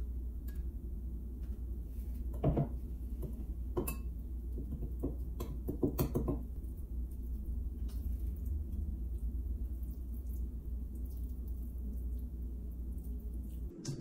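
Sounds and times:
low steady hum: 0.0s - 14.0s
spoon clinking on glass bowl: 3.8s - 4.1s.

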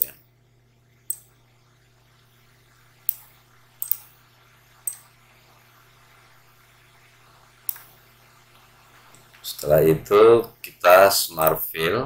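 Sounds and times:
faint low hum: 0.0s - 12.0s
mouse buttons clicking: 3.1s - 4.1s, 4.9s - 5.1s.

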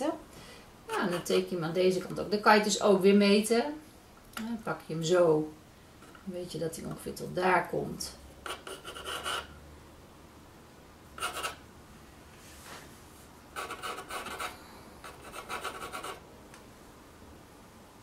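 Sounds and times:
pencil scratching on canvas: 0.9s - 1.4s, 8.4s - 9.5s, 11.2s - 11.6s, 13.6s - 16.2s.

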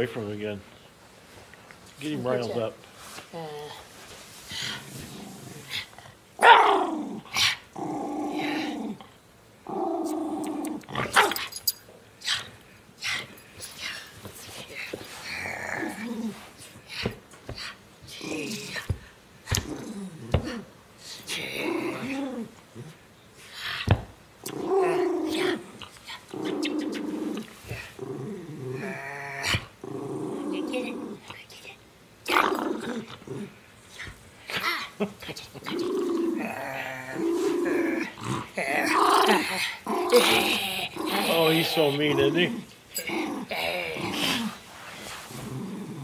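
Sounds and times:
dog growling: 4.6s - 11.3s, 15.2s - 16.4s, 19.5s - 20.7s, 21.3s - 23.0s, 24.4s - 31.2s, 32.3s - 33.6s, 35.6s - 44.6s, 45.3s - 46.0s
dog barking: 6.4s - 6.8s.

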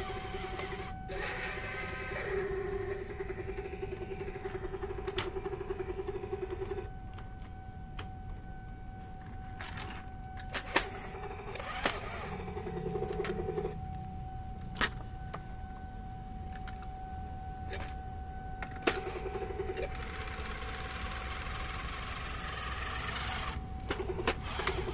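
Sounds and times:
toy helicopter pulsing buzz: 0.0s - 7.1s, 9.7s - 13.9s, 18.6s - 24.9s.

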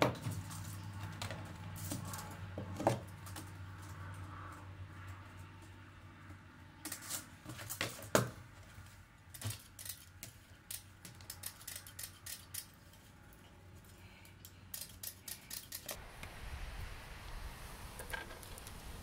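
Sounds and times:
tin snips cutting wire mesh: 9.4s - 12.9s, 14.6s - 16.0s.

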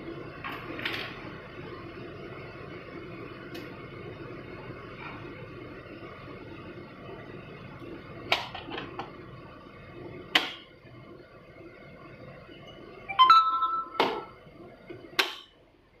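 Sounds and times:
rising electronic beep: 13.1s - 14.3s.

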